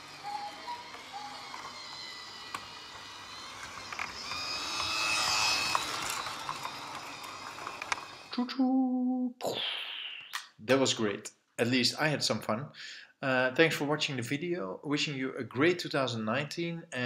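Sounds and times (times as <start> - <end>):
toy train motor whirring: 0.0 - 8.4
clicks of toy train on track: 2.5 - 8.2.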